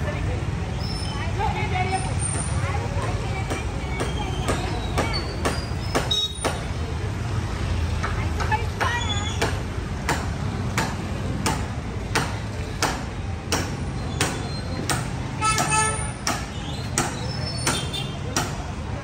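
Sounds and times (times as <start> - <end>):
sharp rhythmic knocks: 3.0 - 6.9, 8.0 - 18.8.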